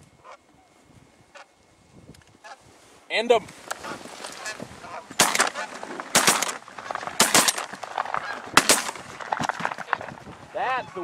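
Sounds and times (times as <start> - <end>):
geese honking: 1.3 - 1.6, 3.7 - 11.0
shotgun blasts: 5.2 - 9.2.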